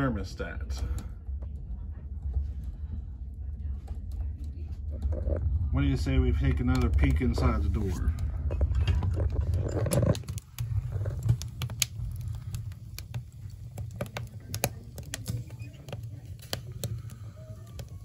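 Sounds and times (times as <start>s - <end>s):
stove drafting low rumble: 0.0s - 18.0s
logs crackling and popping: 3.8s - 18.0s.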